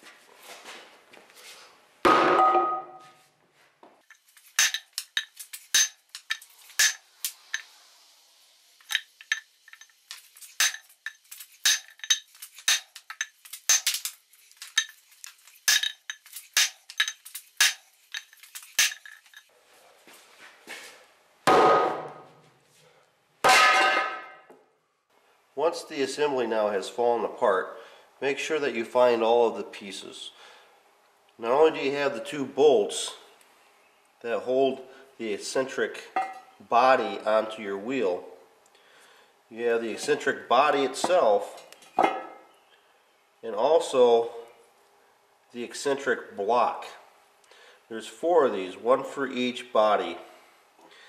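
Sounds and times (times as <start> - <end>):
sharp metallic taps: 4.6 - 7.7, 15.7 - 19.4.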